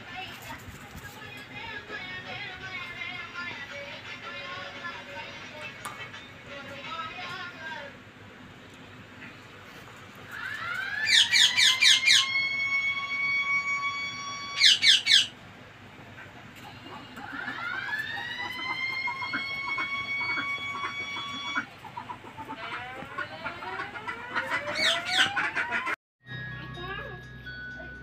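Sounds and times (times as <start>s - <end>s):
parakeets screeching: 10.3s - 15.4s, 16.2s - 26.0s
parakeet whistle-like calls: 10.4s - 15.4s, 18.3s - 21.7s, 23.1s - 25.8s.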